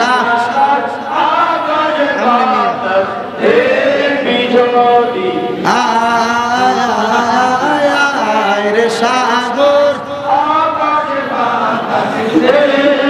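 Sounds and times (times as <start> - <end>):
men chanting a devotional song: 0.0 - 13.0.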